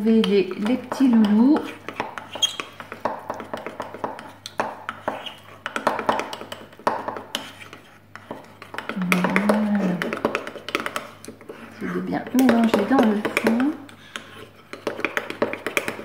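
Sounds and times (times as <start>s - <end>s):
teaspoon stirring in a mug: 0.1s - 16.0s
person humming: 8.9s - 10.0s.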